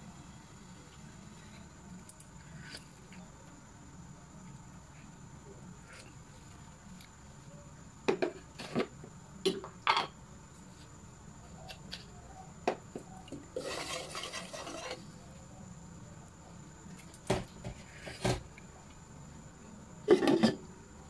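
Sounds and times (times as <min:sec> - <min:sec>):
ladle stirring and sloshing broth: 0:13.6 - 0:15.0.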